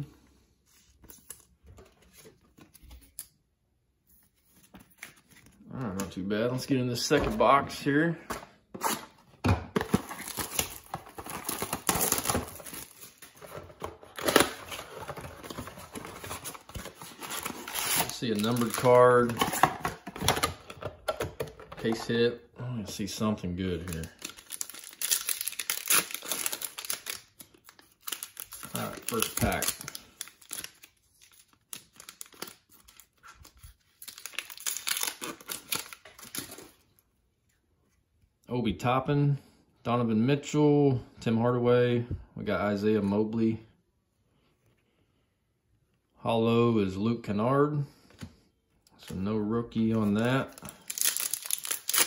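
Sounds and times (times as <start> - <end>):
cardboard rustling: 8.2 - 22.2
plastic wrap crinkling and tearing: 9.8 - 19.7, 23.6 - 36.8, 49.9 - 52.0.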